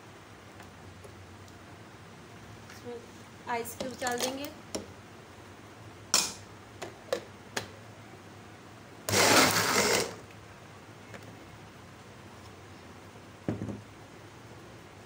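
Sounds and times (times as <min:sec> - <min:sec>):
blender crushing ice: 0:09.1 - 0:10.2.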